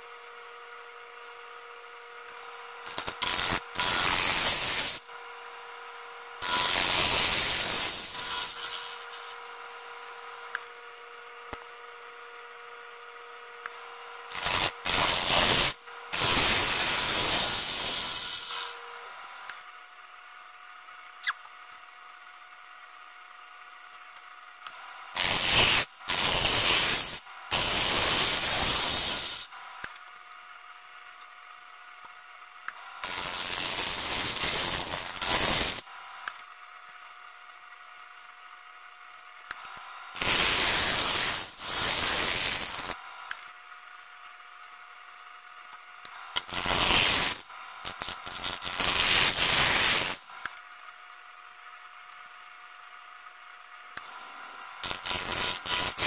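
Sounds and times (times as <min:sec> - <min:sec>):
turning tool cutting wood: 0:02.3 - 0:05.0, 0:06.4 - 0:09.4, 0:13.6 - 0:19.5, 0:24.7 - 0:29.9, 0:32.7 - 0:35.8, 0:39.6 - 0:43.4, 0:46.1 - 0:50.2, 0:54.0 - 0:56.0.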